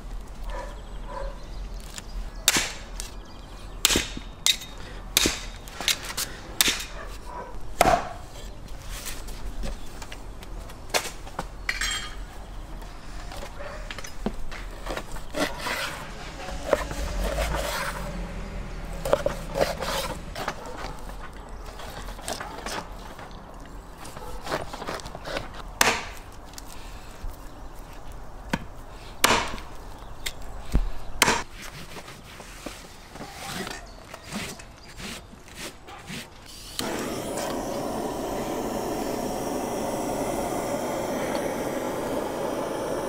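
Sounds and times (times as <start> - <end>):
hatchet chopping on wood block: 2.5 - 2.8, 3.8 - 6.0, 6.6 - 6.9, 7.8 - 8.2, 25.8 - 26.2, 28.5 - 29.7.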